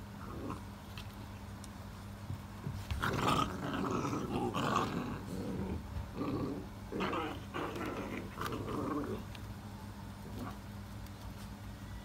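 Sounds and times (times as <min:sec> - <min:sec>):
puppies growling: 0:00.0 - 0:00.8, 0:02.9 - 0:09.4, 0:10.2 - 0:10.7.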